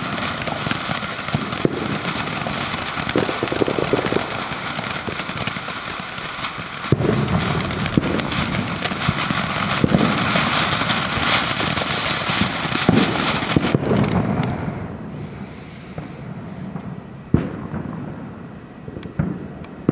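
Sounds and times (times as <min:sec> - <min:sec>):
firework fountain hissing and crackling: 0:00.0 - 0:19.9.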